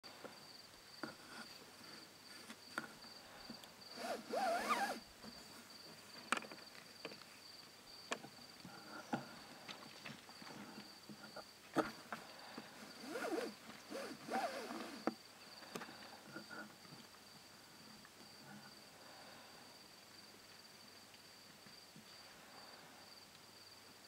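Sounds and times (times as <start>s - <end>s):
breathy hiss: 0.1s - 5.5s, 12.1s - 16.6s, 18.4s - 19.9s
high-pitched insect trill: 3.0s - 5.1s.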